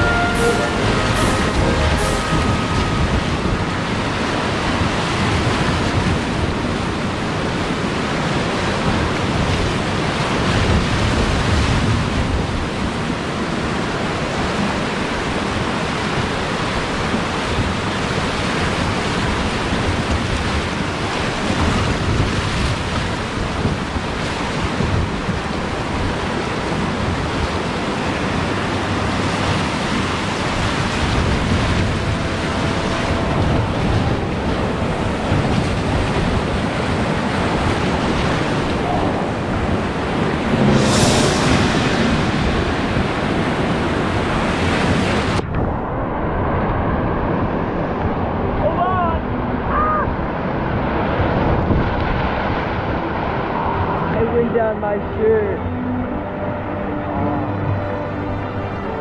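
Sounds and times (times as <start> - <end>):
whitewater rapids rushing: 0.0 - 45.7.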